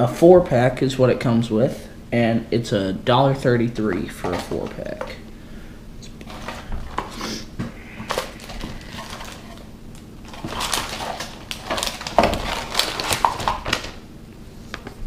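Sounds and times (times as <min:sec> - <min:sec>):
plastic packaging crinkling: 0:08.0 - 0:14.0.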